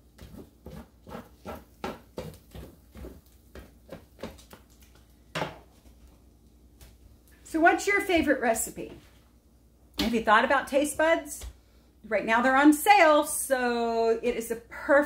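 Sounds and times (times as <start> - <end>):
utensil scraping and knocking skillet: 0.0 - 4.6.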